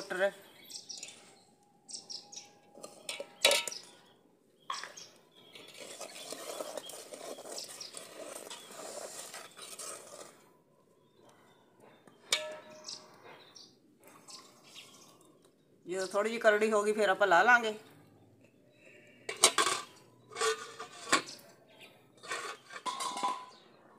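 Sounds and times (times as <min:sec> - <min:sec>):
ladle scraping a pot: 0:02.8 - 0:03.9, 0:05.5 - 0:10.5, 0:18.9 - 0:21.4, 0:22.2 - 0:23.7.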